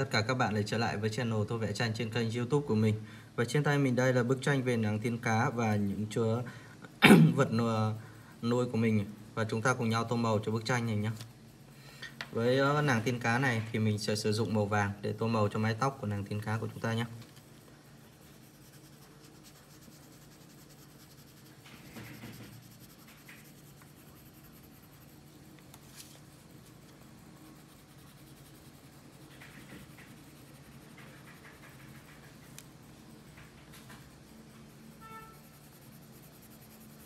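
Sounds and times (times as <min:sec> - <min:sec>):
colored pencil shading on paper: 0:15.2 - 0:37.0.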